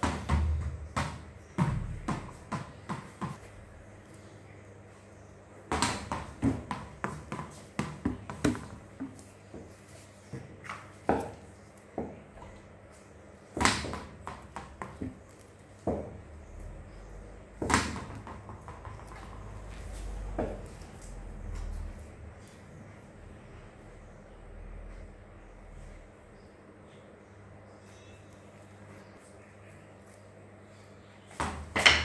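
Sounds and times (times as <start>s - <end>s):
ball knocking on hard floor: 0.0s - 3.4s, 5.7s - 9.7s, 13.6s - 15.2s, 15.8s - 16.2s, 17.6s - 19.7s.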